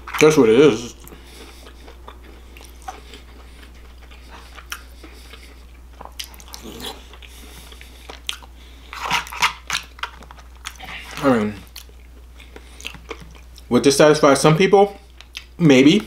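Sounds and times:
chewing: 0.0 - 13.7, 15.0 - 16.0.

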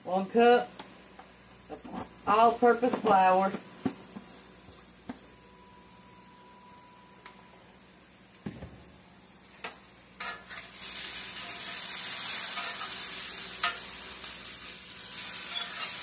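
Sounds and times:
dull knock: 8.4 - 8.8
potatoes sizzling in a skillet: 9.4 - 16.0.

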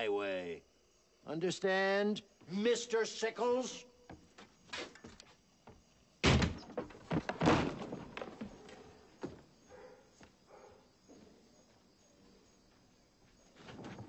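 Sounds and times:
door slamming: 6.2 - 8.4.

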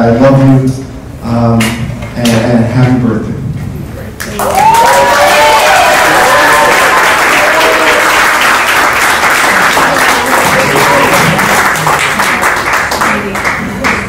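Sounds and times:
people applauding: 4.2 - 14.0.

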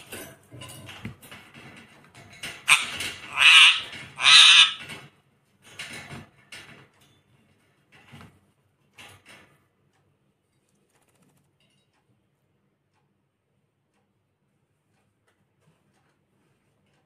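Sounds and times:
bird rustling and fluttering: 0.0 - 9.7, 10.5 - 11.9
parakeet squawking: 2.7 - 4.9.

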